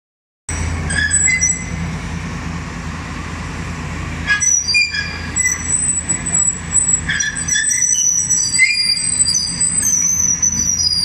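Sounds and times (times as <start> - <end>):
high-pitched metallic squeals: 0.5 - 1.8, 4.2 - 11.0.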